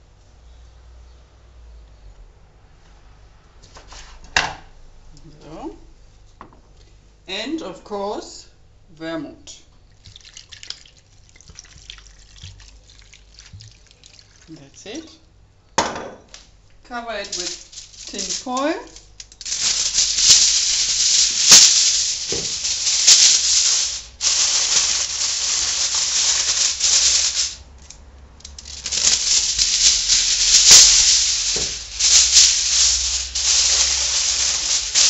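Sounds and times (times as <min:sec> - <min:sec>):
aluminium foil crinkling: 0:10.0 - 0:15.1, 0:17.1 - 0:35.0.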